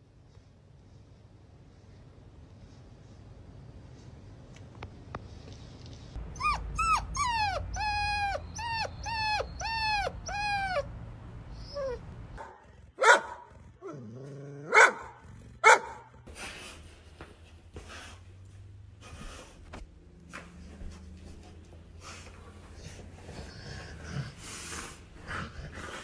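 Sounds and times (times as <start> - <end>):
puppy whining: 6.2 - 12.4
dog barking: 12.4 - 13.5, 14.6 - 16.2.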